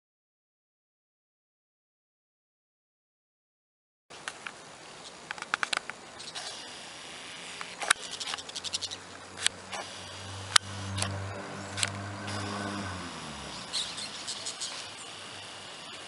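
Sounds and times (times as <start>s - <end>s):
sharp clicks: 5.2s - 6.5s, 9.4s - 12.4s
chattering bird calls: 6.2s - 6.8s, 7.6s - 10.3s, 13.2s - 16.0s
engine drone: 6.6s - 16.0s.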